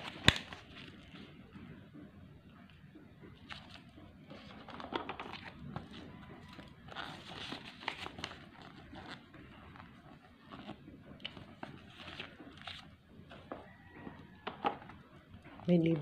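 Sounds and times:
packaging crinkling and rustling: 3.4s - 13.7s.

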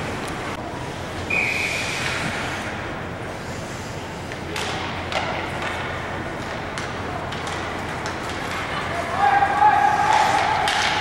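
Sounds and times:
whistle tone: 1.3s - 2.0s.

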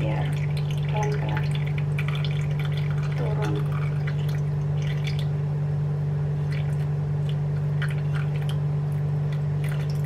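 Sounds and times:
batter dripping into syrup: 0.0s - 5.4s
steady low hum: 0.0s - 10.0s.

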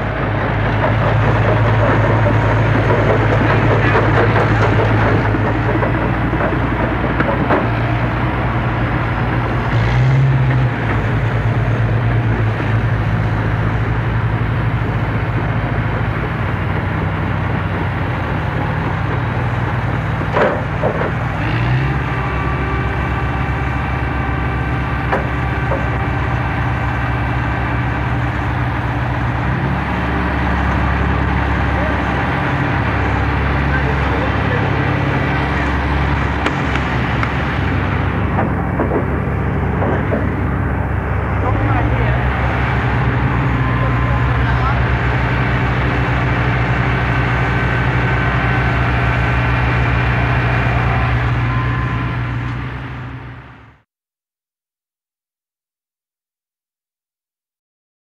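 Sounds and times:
excavator engine running: 0.0s - 53.8s.

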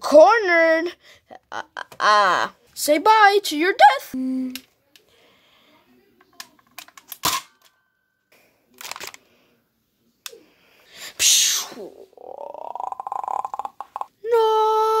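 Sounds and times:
plastic clatter: 6.3s - 7.7s, 8.8s - 9.2s.

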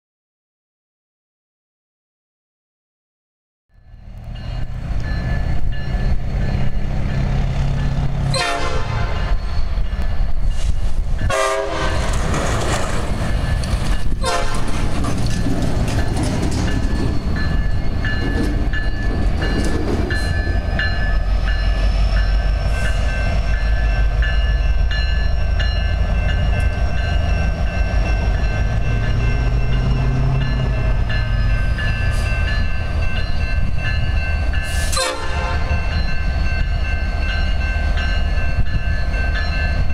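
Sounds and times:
diesel locomotives rumbling: 3.7s - 39.9s
crossing bell ringing: 3.8s - 10.4s, 13.1s - 39.9s
train horn: 8.3s - 9.4s, 11.3s - 12.2s, 14.2s - 14.7s, 34.7s - 35.9s.

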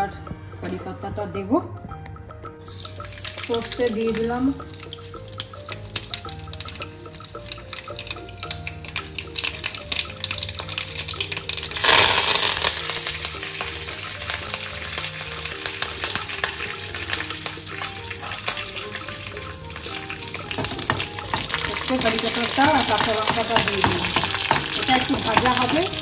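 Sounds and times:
seeds crackling in hot oil: 2.6s - 26.0s
loud burst of sizzling: 11.7s - 14.2s.

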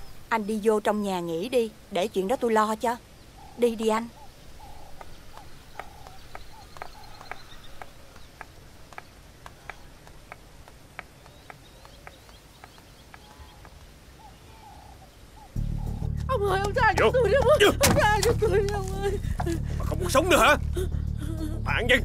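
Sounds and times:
sharp taps: 4.9s - 13.9s.

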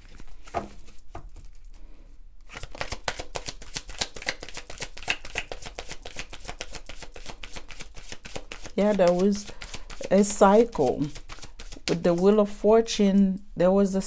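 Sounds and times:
cards being shuffled by hand: 0.0s - 1.8s, 2.4s - 12.5s.

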